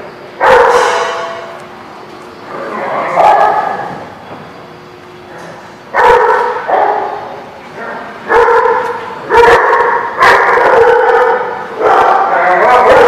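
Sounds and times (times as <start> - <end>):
dogs barking: 0.4 - 1.6, 2.8 - 4.1, 5.9 - 13.0.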